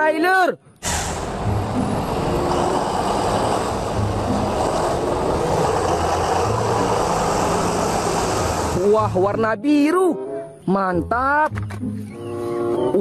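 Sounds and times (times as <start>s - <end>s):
truck diesel engine droning: 0.8s - 9.2s.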